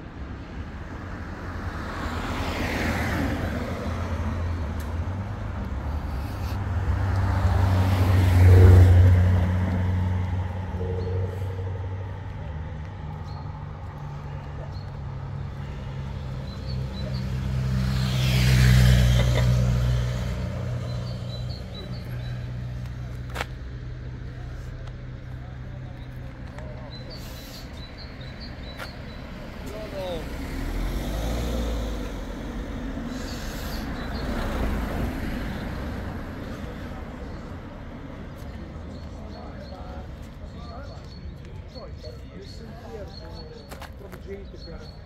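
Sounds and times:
vehicles passing: 0:00.0 - 0:45.0
vehicle driving past: 0:05.9 - 0:12.7, 0:15.2 - 0:22.9.

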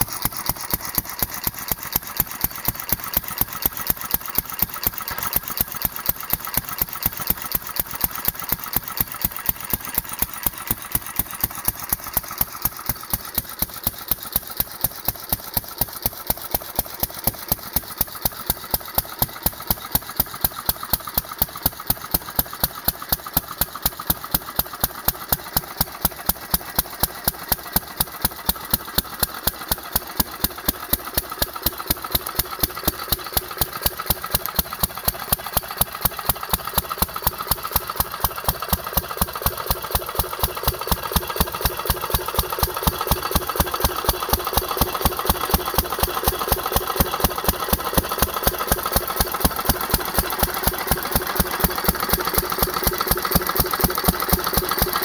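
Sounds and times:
stationary engine running: 0:00.0 - 0:55.0.

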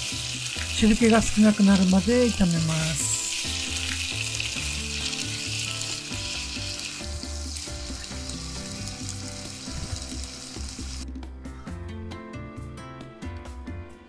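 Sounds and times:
food sizzling in a frying pan: 0:00.0 - 0:11.0.

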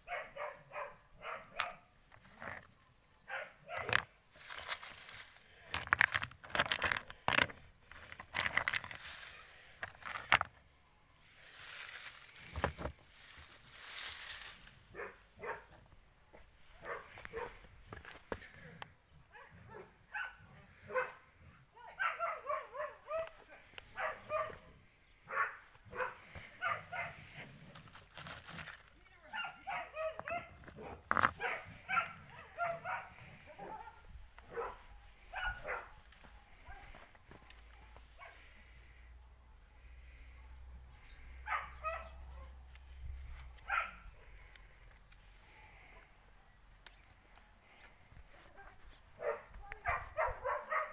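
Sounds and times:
rustling in dry grass: 0:03.8 - 0:18.8, 0:23.1 - 0:39.1, 0:41.4 - 0:50.9.

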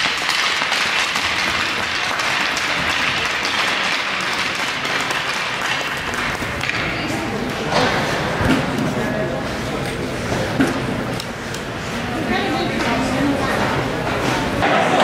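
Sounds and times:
crowd applauding: 0:00.0 - 0:06.3.

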